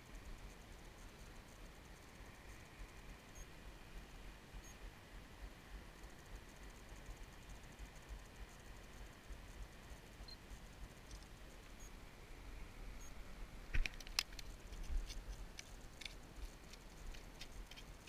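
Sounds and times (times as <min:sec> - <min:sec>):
fishing gear clicking on gravel: 0:13.8 - 0:18.0.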